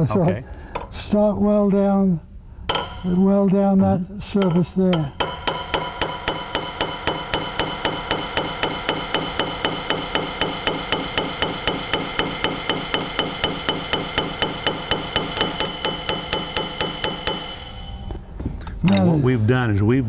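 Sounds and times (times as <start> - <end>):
hammer striking steel: 2.7 - 3.4, 4.2 - 18.2.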